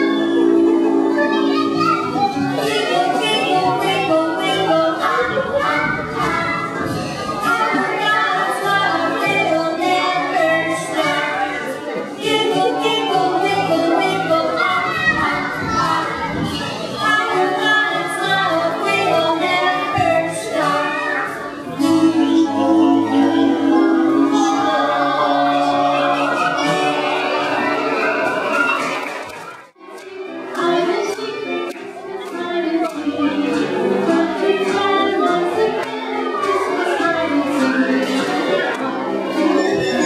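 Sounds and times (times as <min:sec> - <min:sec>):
group of voices singing: 0:00.0 - 0:28.8, 0:30.2 - 0:40.0.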